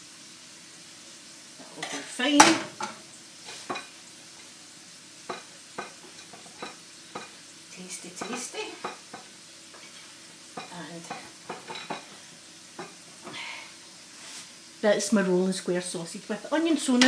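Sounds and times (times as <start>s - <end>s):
faint frying sizzle: 0.0s - 17.0s
utensil scraping frying pan: 1.6s - 4.6s, 5.2s - 7.4s, 8.0s - 13.5s.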